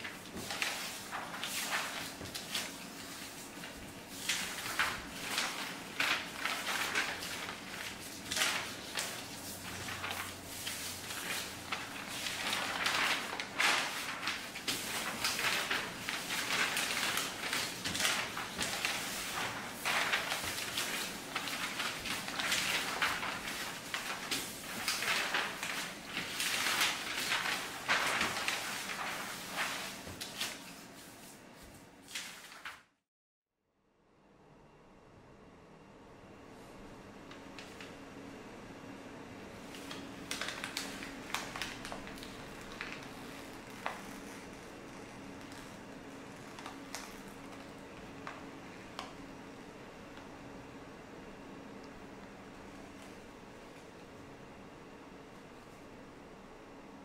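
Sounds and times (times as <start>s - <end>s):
paper rustling on wooden floor: 0.0s - 32.8s, 37.6s - 37.9s, 39.6s - 49.2s.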